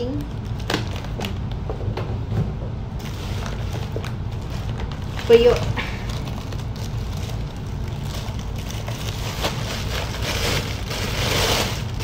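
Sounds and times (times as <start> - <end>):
steady low hum: 0.0 - 12.0
plastic bag rustling and crinkling: 3.0 - 12.0.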